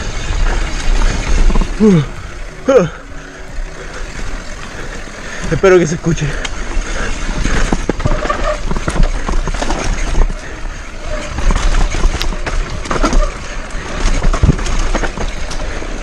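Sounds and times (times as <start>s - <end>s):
tyre and wind noise: 0.0s - 16.0s
bike knocks and rattles: 4.2s - 16.0s.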